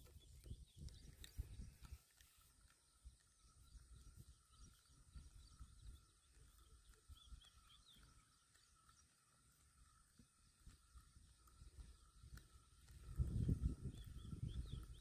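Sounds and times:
faint bird chirps: 0:00.0 - 0:15.0
soft low rumbles: 0:00.0 - 0:15.0.

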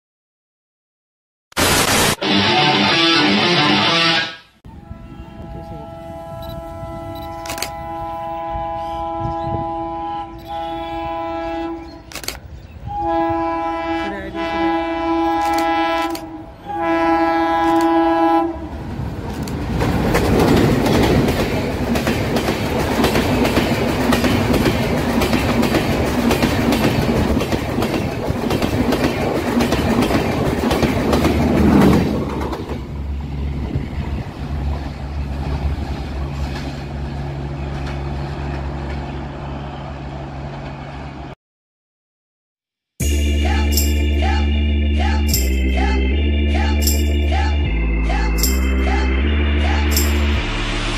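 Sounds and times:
locomotive horn blasts: 0:04.2 - 0:12.1, 0:12.8 - 0:18.7
low steady train hum: 0:04.7 - 0:41.4
train passing with loud rush: 0:04.7 - 0:41.4, 0:48.8 - 0:50.9
wheels clattering over rail joints: 0:34.6 - 0:39.2.

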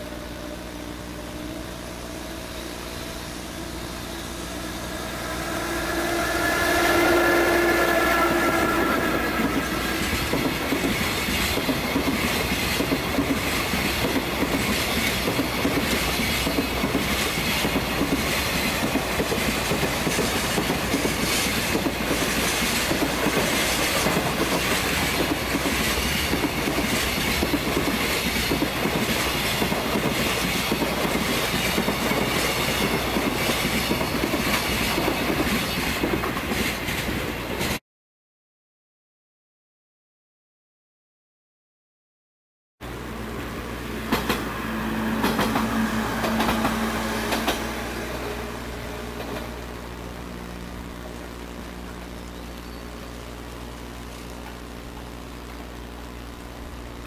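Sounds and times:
electric locomotive passing: 0:00.0 - 0:37.8, 0:42.8 - 0:56.9
wheels clacking over rail joints: 0:44.0 - 0:49.7.

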